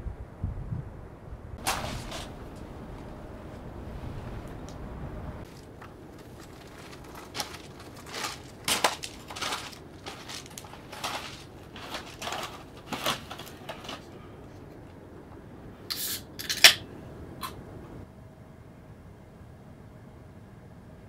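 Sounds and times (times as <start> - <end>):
footsteps crunching on gravel: 1.6 - 3.7, 5.4 - 14.1.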